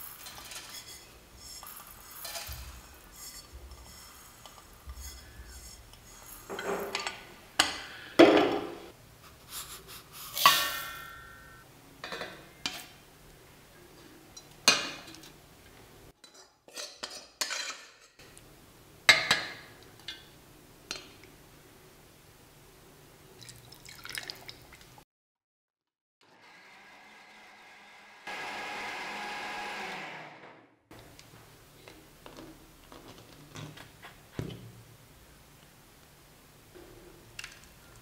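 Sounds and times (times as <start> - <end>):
seeds poured into steel jar: 0.0 - 6.5
spoon scraping steel container: 0.0 - 7.2
steel kitchenware clinking: 0.0 - 8.1, 16.2 - 18.2.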